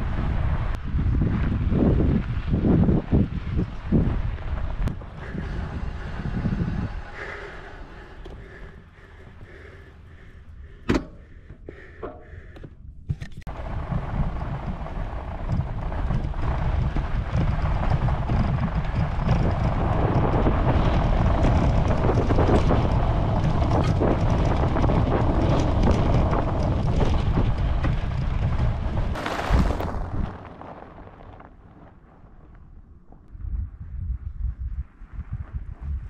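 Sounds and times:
wind buffeting microphone: 0.0 - 36.0
tyre rumbling over sand: 13.5 - 32.6.

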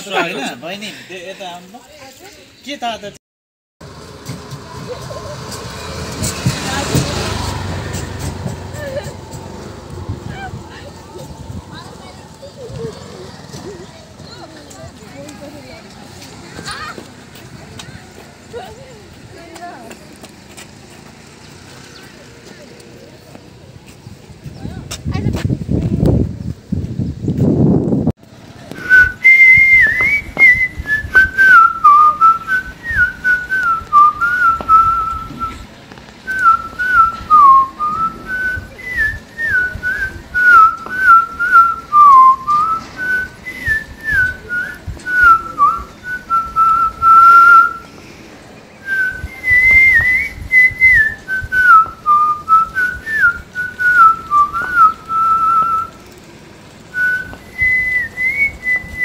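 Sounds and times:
person whistling a tune: 28.8 - 35.6, 36.3 - 47.9, 48.8 - 55.9, 57.0 - 59.0.

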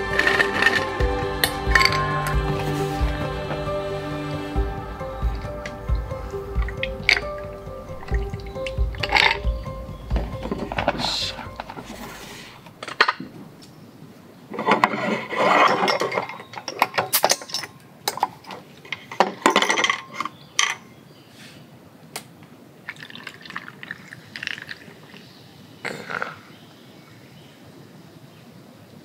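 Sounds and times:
glass bottles clinking: 0.0 - 3.7, 5.4 - 12.0, 14.6 - 20.9
ice crackling and clinking: 0.0 - 3.7, 5.4 - 12.2, 14.5 - 20.8
liquid poured over ice: 22.9 - 25.2
fizzy drink pouring: 22.9 - 25.4.

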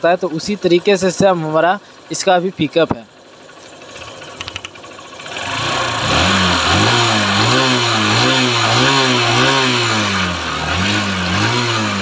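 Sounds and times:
motorcycle engine revving: 3.1 - 12.0.

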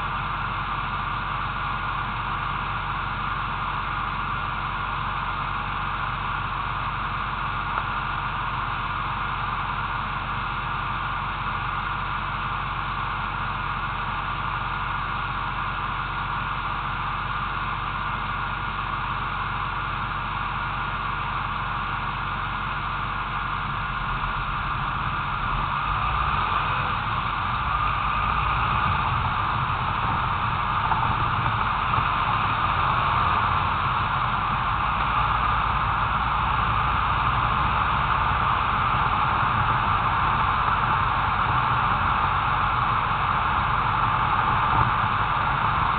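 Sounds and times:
vehicle rumble on road: 0.0 - 45.9
wind noise hiss: 23.8 - 36.0.

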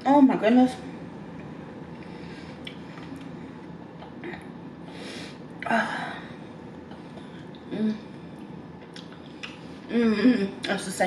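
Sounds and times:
person breathing: 4.8 - 6.4.

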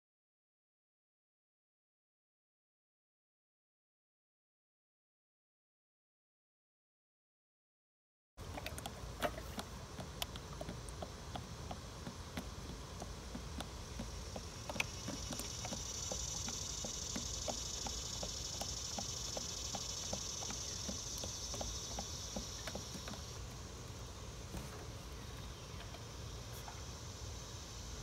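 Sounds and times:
insects buzzing: 8.4 - 28.0
regular ticking: 8.6 - 23.6.

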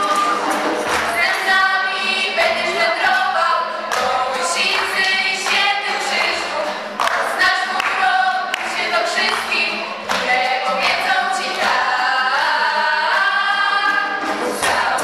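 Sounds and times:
girls choir singing: 0.0 - 15.0.

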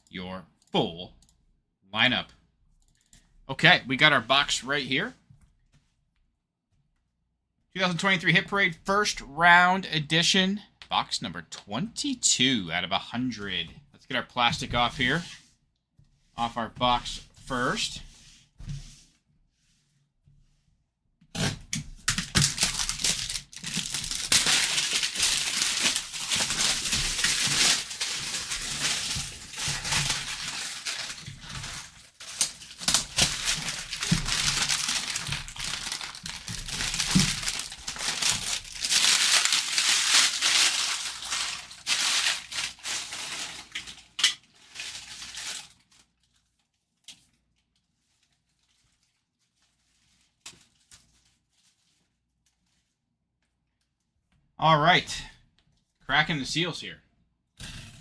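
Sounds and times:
plastic wrap crinkling: 22.1 - 53.0.

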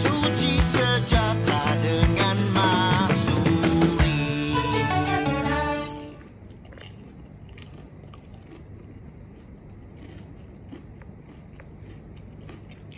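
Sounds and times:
music: 0.0 - 6.3
crunchy chewing: 6.1 - 12.9.

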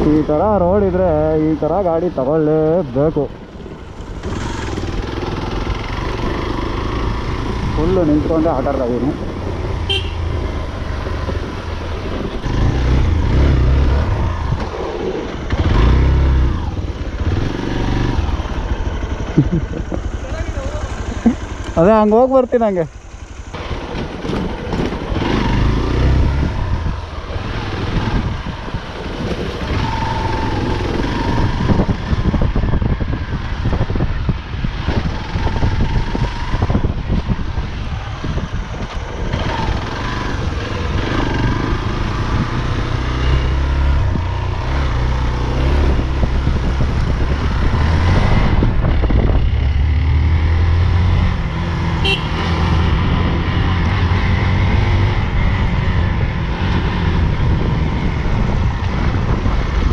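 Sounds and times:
motorcycle engine: 0.0 - 59.9
wind buffeting microphone: 23.5 - 59.9.

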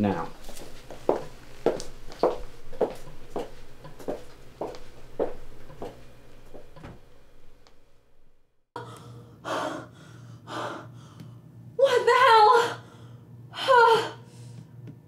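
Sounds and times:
soft regular taps: 0.2 - 7.0
person breathing heavily: 8.8 - 11.4.

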